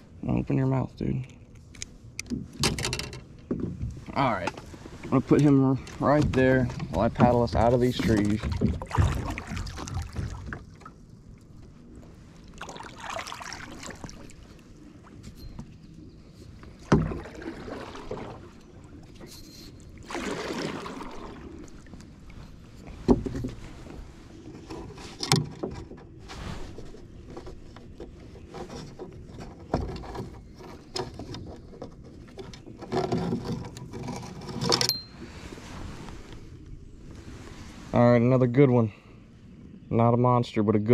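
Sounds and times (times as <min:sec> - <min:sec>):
paddle knocking metal hull: 0:06.1 - 0:10.9
paddle swishing through water: 0:07.2 - 0:38.0.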